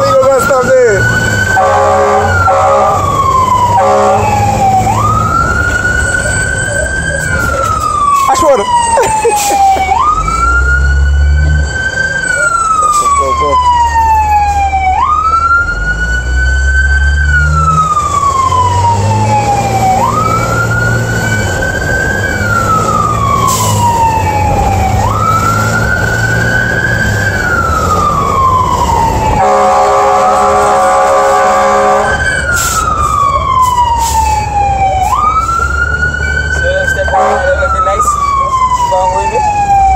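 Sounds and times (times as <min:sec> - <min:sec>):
fire truck siren wailing: 0:00.0 - 0:39.9
multi-tone horn blast: 0:01.6 - 0:03.0, 0:03.7 - 0:04.4, 0:29.4 - 0:32.2, 0:37.1 - 0:37.6.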